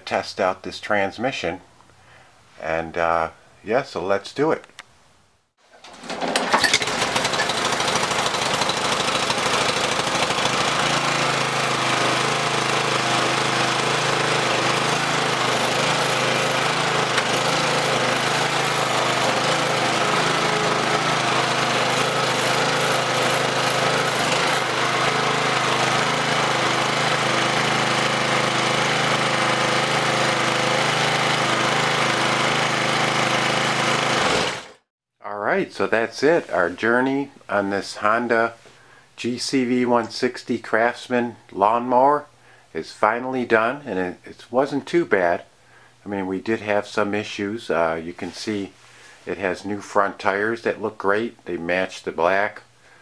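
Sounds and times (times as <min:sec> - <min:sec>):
lawn mower engine running: 0:05.7 - 0:34.8.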